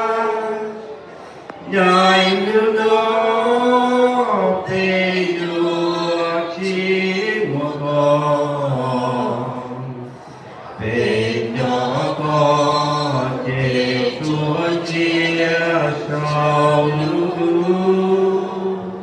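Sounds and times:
group singing without instruments: 0:00.0 - 0:19.0.

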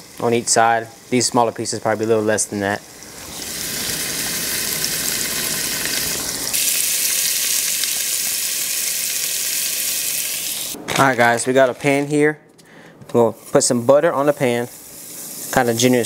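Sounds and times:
fish sizzling in oil: 0:00.0 - 0:10.8, 0:14.3 - 0:16.0.

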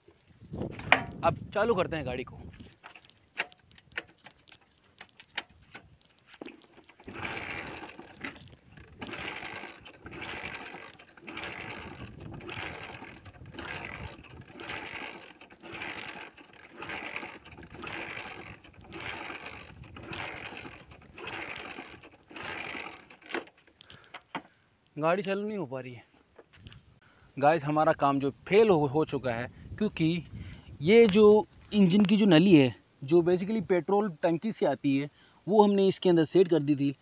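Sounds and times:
motorcycle engine cranking: 0:00.5 - 0:24.5.

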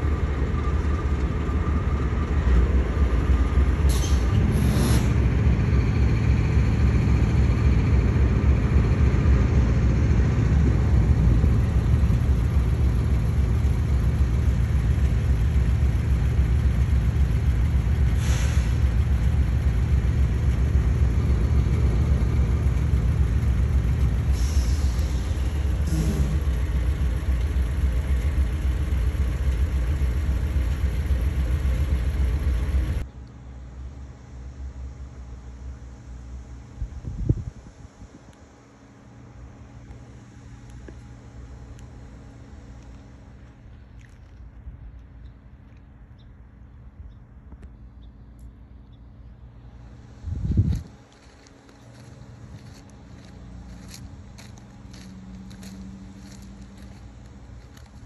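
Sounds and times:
diesel locomotive rumbling: 0:00.0 - 0:58.0
short air hisses: 0:03.9 - 0:05.2, 0:18.2 - 0:18.8, 0:24.3 - 0:26.4.

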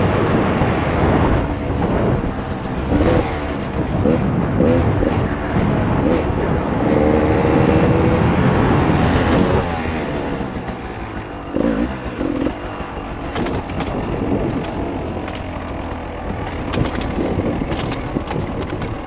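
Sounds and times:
motorbike engine revving: 0:00.0 - 0:19.0
light clattering ticks: 0:13.3 - 0:19.0.

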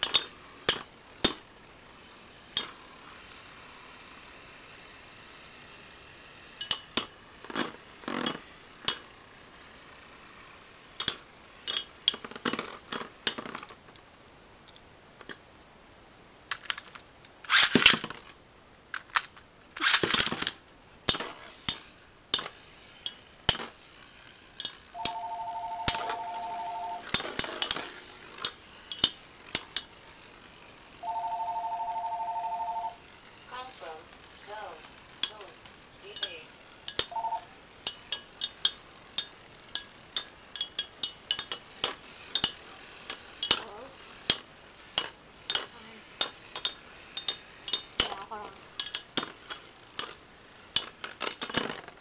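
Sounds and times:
spinning tops clattering: 0:00.0 - 0:01.5, 0:19.0 - 0:52.0
ripcord launcher rasping: 0:16.5 - 0:18.2, 0:19.0 - 0:32.1
two-tone electronic beep: 0:37.1 - 0:37.5.

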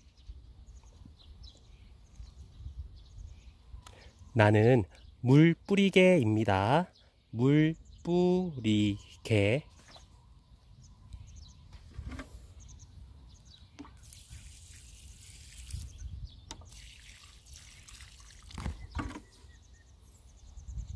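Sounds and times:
water trickling onto soil: 0:13.8 - 0:19.3.

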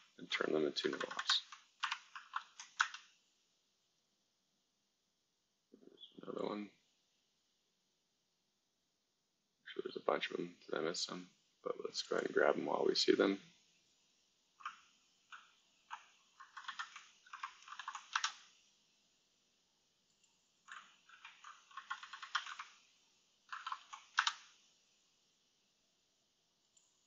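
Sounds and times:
keyboard typing: 0:00.8 - 0:03.1, 0:14.6 - 0:18.5, 0:20.1 - 0:22.8, 0:23.5 - 0:24.6.

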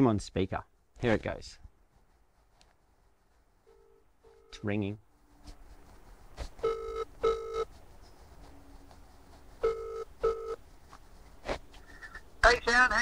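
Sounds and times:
phone ringback tone: 0:03.7 - 0:04.6, 0:06.6 - 0:07.7, 0:09.6 - 0:10.6.

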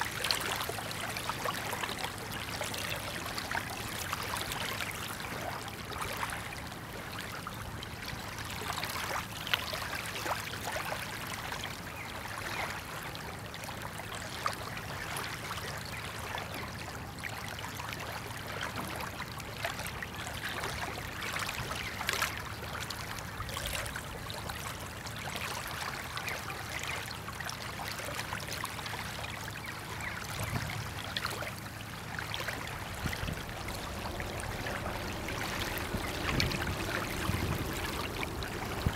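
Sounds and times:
small water splashes: 0:00.0 - 0:38.9
water lapping and trickling: 0:00.0 - 0:38.9
ship engine low hum: 0:29.2 - 0:38.9.

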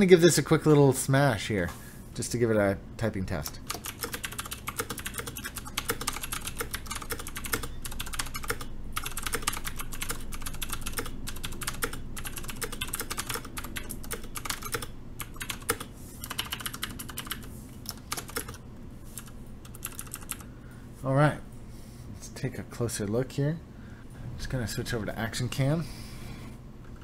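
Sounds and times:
fast mechanical keyboard typing: 0:03.6 - 0:18.6, 0:19.2 - 0:20.4.

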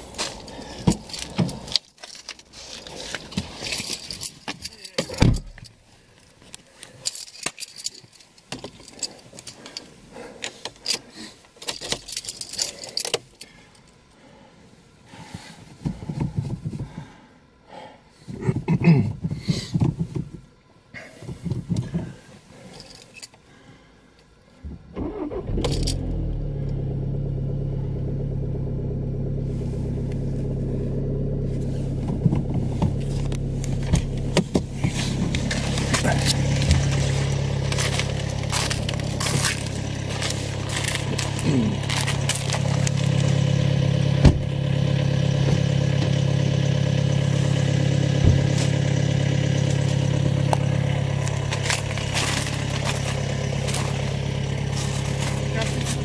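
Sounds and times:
diesel engine cranking and idling: 0:00.0 - 0:17.7, 0:21.1 - 0:56.0
keys jangling: 0:00.4 - 0:05.8, 0:07.0 - 0:10.0, 0:10.6 - 0:13.9, 0:22.7 - 0:23.4, 0:25.6 - 0:26.0, 0:34.9 - 0:43.5, 0:50.7 - 0:56.0.

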